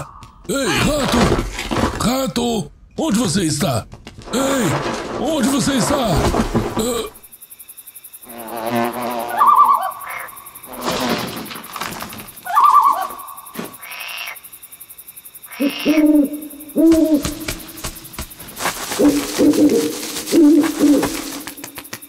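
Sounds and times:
owl hooting: 9.3s - 10.4s, 12.4s - 14.4s, 15.5s - 17.7s, 18.9s - 21.6s.

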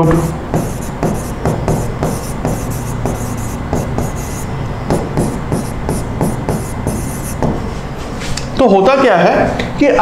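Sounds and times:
marker scratching on board: 0.0s - 7.6s
steady low hum: 0.0s - 8.2s.

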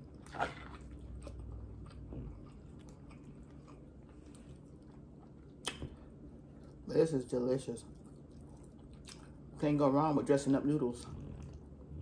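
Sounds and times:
person chewing noodles: 0.0s - 6.8s, 7.8s - 9.6s.

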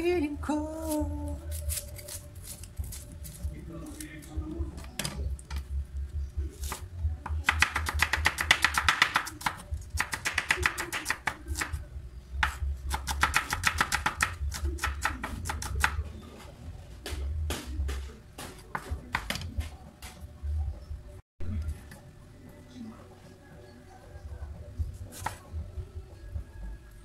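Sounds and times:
cleaver chopping on a wooden board: 6.6s - 11.7s, 12.4s - 16.0s.

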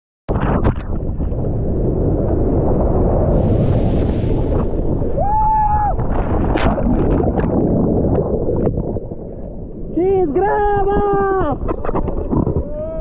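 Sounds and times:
wind buffeting microphone: 0.3s - 13.0s
whitewater rushing: 3.3s - 7.6s.

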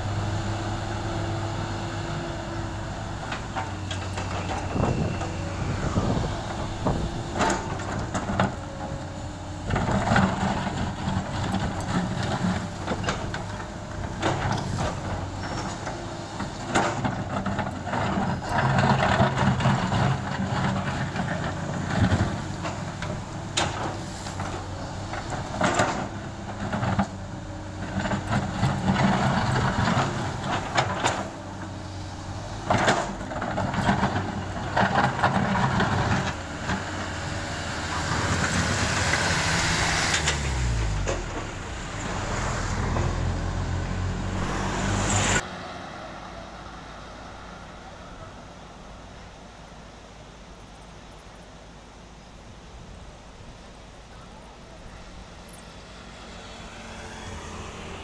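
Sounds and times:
excavator diesel engine revving: 0.0s - 48.3s.

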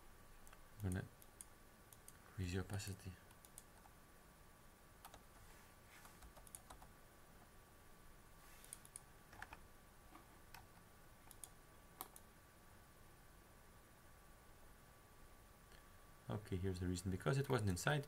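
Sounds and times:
mouse and keyboard clicks: 6.0s - 6.9s, 8.6s - 12.3s.

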